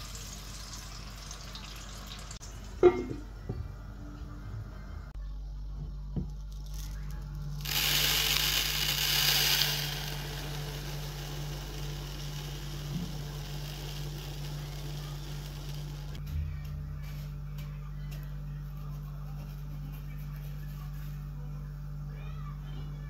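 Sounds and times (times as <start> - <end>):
grains pouring onto wooden table: 6.5 - 16.2.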